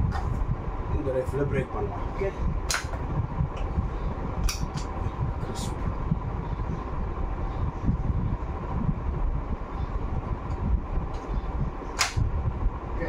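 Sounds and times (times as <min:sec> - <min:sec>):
room hum with low rumble: 0:00.0 - 0:13.0
air rifle clicks: 0:02.7 - 0:03.0, 0:12.0 - 0:12.2.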